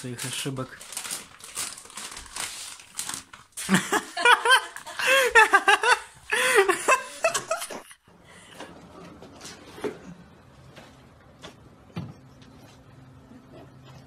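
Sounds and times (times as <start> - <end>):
plastic bag rustling: 0.0 - 4.4
person laughing and giggling: 3.6 - 8.0.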